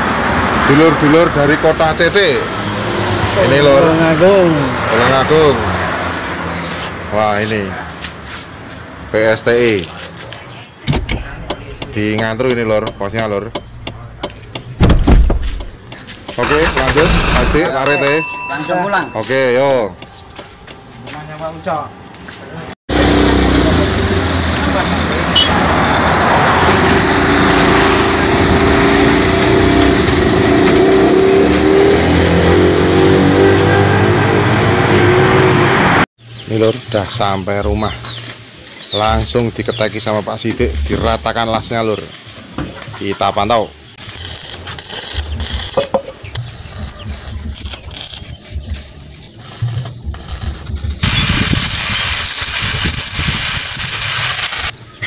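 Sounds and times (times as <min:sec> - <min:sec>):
road and wind noise: 0:00.0 - 0:41.5, 0:42.2 - 0:55.0
small engine running: 0:16.4 - 0:18.0, 0:22.9 - 0:25.2, 0:26.6 - 0:31.7
welding arc crackling and hissing: 0:38.1 - 0:45.8, 0:49.3 - 0:54.8.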